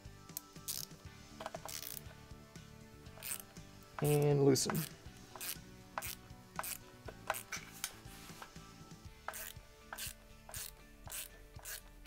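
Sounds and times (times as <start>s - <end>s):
screwdriver clicking: 0.3s - 2.2s, 3.2s - 7.6s, 9.3s - 11.9s.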